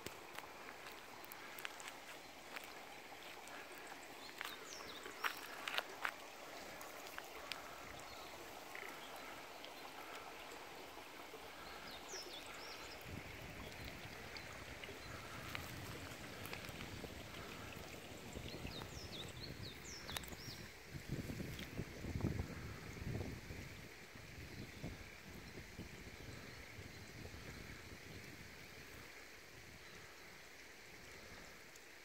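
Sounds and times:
wind rumble on microphone: 12.9 - 29.8.

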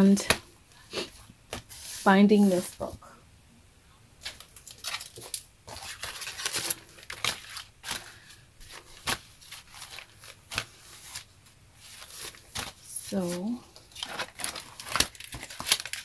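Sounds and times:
paper crackling and rustling: 4.2 - 16.0.

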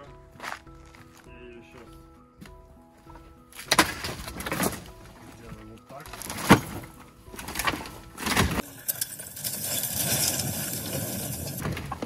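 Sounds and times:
wooden boards cracking and knocking: 3.6 - 5.0, 6.1 - 8.6, 10.0 - 12.0
wreckage scraping and rattling: 3.6 - 12.0.

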